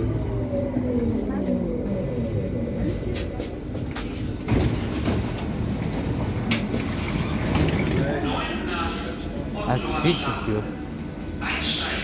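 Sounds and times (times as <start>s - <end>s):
train running rumble: 0.0s - 12.0s
train doors sliding open: 2.9s - 8.2s
train knocks and clunks: 2.9s - 8.3s.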